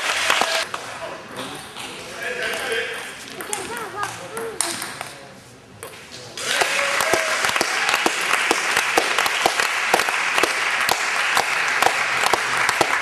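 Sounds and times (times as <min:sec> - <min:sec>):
spectators applauding: 0:00.0 - 0:00.7, 0:06.4 - 0:13.0.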